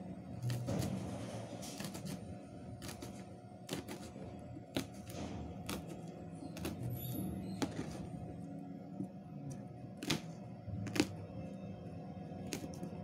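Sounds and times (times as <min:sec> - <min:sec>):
knife slicing on plastic: 0:00.5 - 0:02.2, 0:02.8 - 0:06.0, 0:06.6 - 0:07.0, 0:10.0 - 0:11.2.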